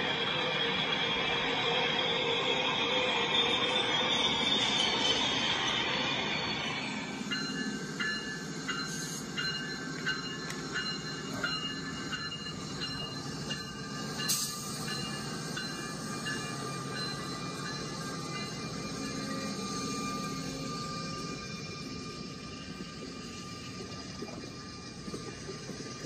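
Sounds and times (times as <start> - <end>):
toy train rumble and whine: 0.0 - 26.0.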